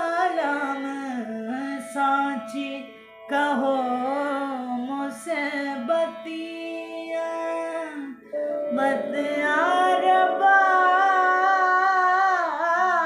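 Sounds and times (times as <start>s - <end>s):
steady drone note: 8.4s - 12.6s.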